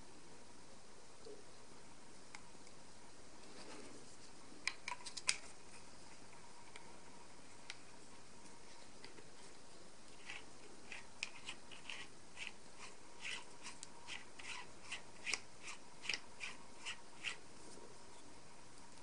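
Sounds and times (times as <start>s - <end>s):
plastic threads squeaking and clicking: 10.2s - 17.4s.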